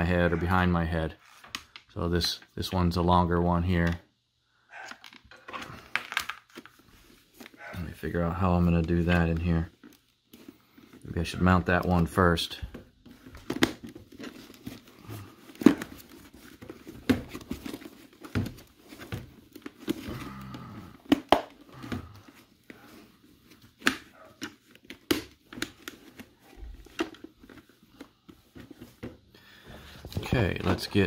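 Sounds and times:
plastic helmet parts clicking: 0:01.4 - 0:01.9, 0:04.8 - 0:11.1, 0:11.7 - 0:29.2.

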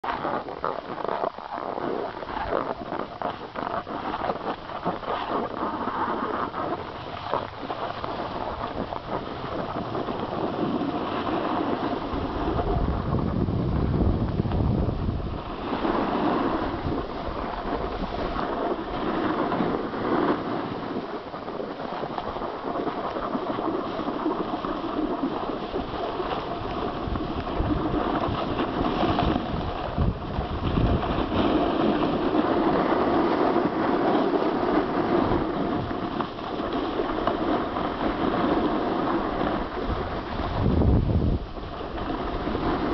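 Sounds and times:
ski edges scraping on snow: 0:00.0 - 0:42.9
wind rushing over microphone: 0:00.0 - 0:42.9.

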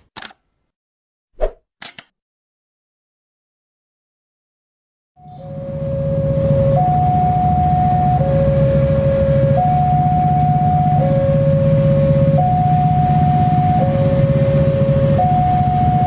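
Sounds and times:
level crossing alarm tones: 0:05.2 - 0:16.0.

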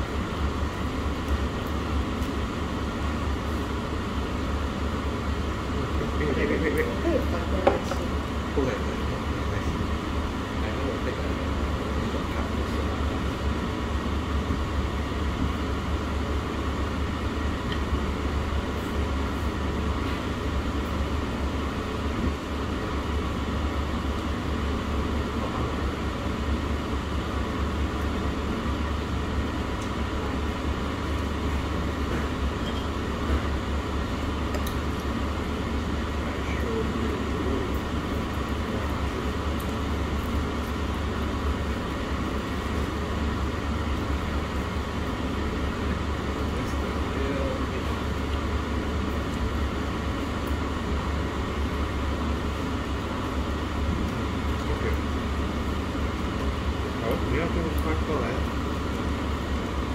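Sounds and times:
restaurant room noise: 0:00.0 - 0:59.9.

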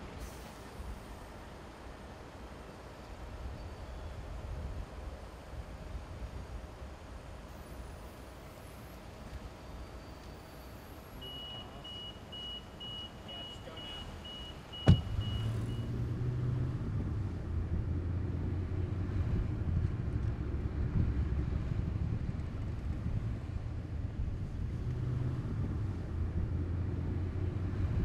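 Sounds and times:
car engine and road rumble: 0:00.0 - 0:28.0
car warning chime beeping: 0:11.2 - 0:15.9
sharp knock: 0:14.8 - 0:15.2.

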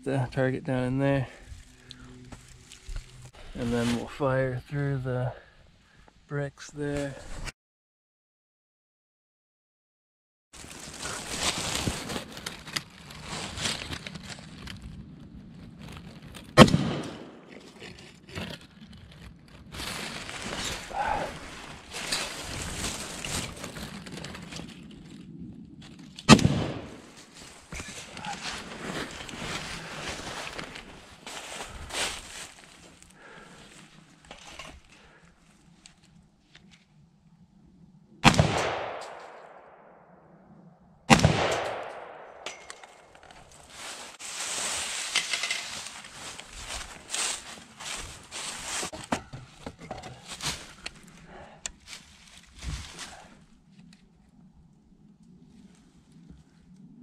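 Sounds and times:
dry leaves rustling and crunching: 0:10.6 - 0:15.0, 0:18.3 - 0:26.1, 0:27.0 - 0:34.0, 0:43.1 - 0:49.0, 0:50.1 - 0:53.4
rifle shot: 0:16.6 - 0:17.4, 0:26.3 - 0:27.0, 0:38.2 - 0:40.0, 0:41.1 - 0:42.5.

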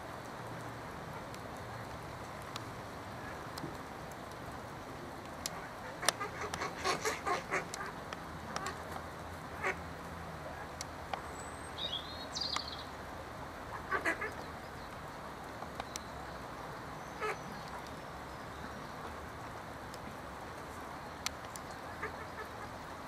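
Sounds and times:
outdoor background noise: 0:00.0 - 0:23.0
ducks calling: 0:05.5 - 0:09.0, 0:13.7 - 0:14.6, 0:21.6 - 0:22.9.

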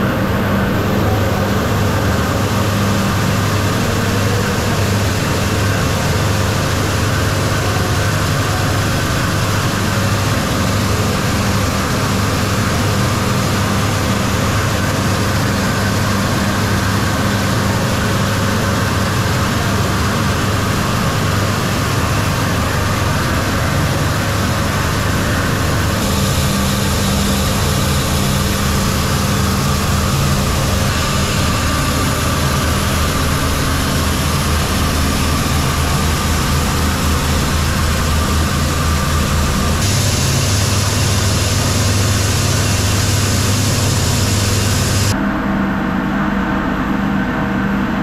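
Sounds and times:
low motor hum: 0:00.0 - 0:48.0
hiss of machinery and grain: 0:26.0 - 0:45.1.

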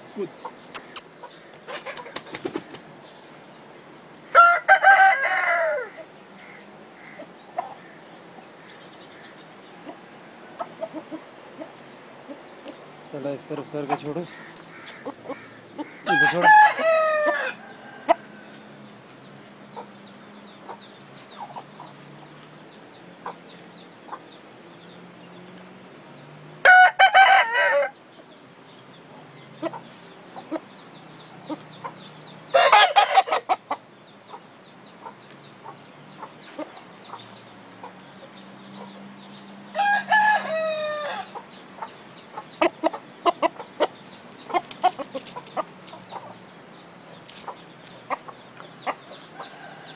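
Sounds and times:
rooster crowing: 0:04.3 - 0:06.1, 0:16.0 - 0:18.6, 0:26.6 - 0:28.0, 0:32.5 - 0:33.4, 0:39.7 - 0:41.4, 0:49.3 - 0:49.9
small ticks: 0:47.2 - 0:48.7.

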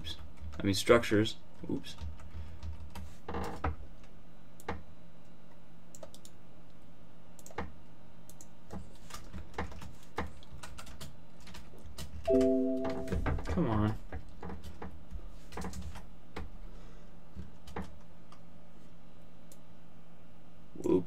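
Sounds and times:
keyboard keystrokes: 0:09.1 - 0:13.4
short multi-pitch tone: 0:12.3 - 0:13.3.

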